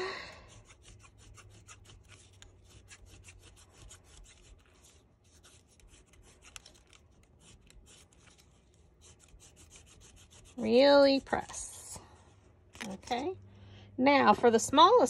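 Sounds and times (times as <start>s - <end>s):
embossing tool scratching paper: 0.5s - 11.8s.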